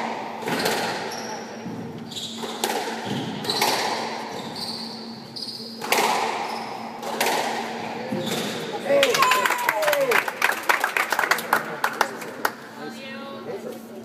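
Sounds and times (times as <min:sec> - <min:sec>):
squash ball hitting rackets and walls: 0:00.0 - 0:08.8
shoes squeaking on hardwood floor: 0:01.1 - 0:05.8.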